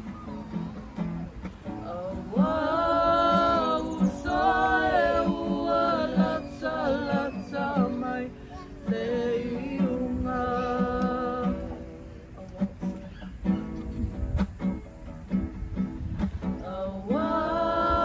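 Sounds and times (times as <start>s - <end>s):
voices singing together: 1.6s - 12.1s, 16.4s - 18.0s.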